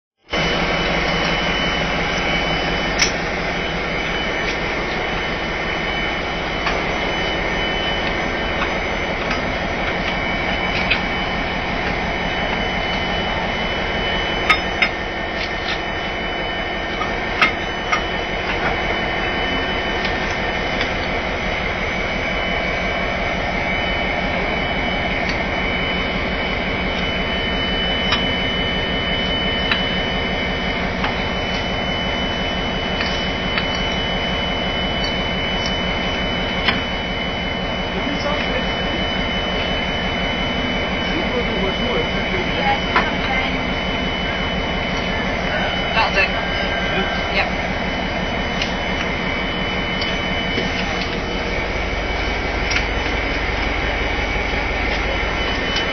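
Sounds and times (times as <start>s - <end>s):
diesel locomotive idling: 0.2s - 55.9s.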